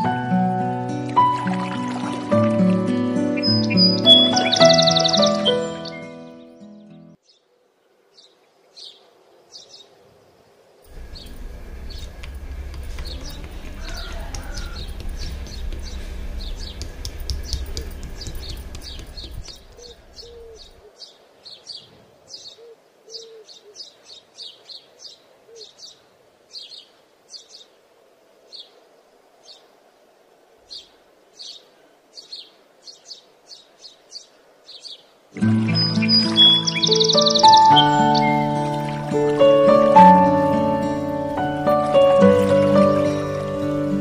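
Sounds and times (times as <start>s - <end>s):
small bird chirping: 3.4s - 6.2s, 10.9s - 27.7s, 32.2s - 39.8s
loud low rumble: 10.9s - 19.4s.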